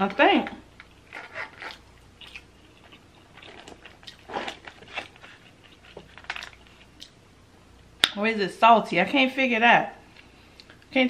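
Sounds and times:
chewing with wet mouth clicks: 0:01.7 - 0:04.3.

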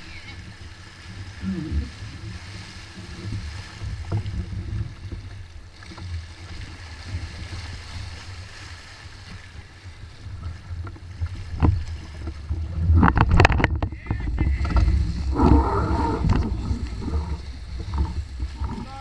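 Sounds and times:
water rushing along hull: 0:00.0 - 0:19.0
wind buffeting microphone: 0:09.2 - 0:19.0.

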